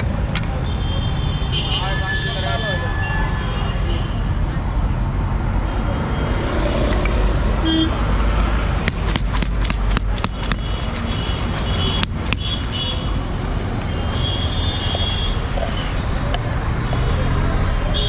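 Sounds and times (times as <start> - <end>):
street traffic rumble: 0.0 - 18.0
vehicle horns tooting: 0.6 - 4.3, 7.6 - 8.0, 13.9 - 16.0.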